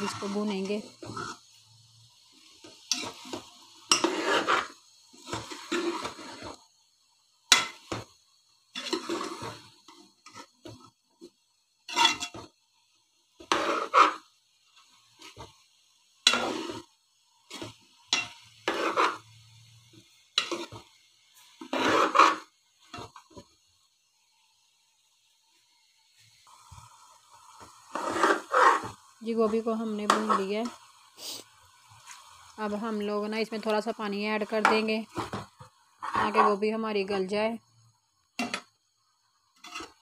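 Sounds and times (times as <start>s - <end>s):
food frying: 0.0s - 40.0s
ladle scraping metal pot: 2.8s - 6.6s, 8.7s - 10.8s, 11.9s - 12.5s, 13.4s - 14.3s, 16.2s - 16.9s, 17.5s - 19.3s, 20.4s - 20.8s, 21.6s - 23.2s, 27.9s - 29.0s, 39.6s - 40.0s.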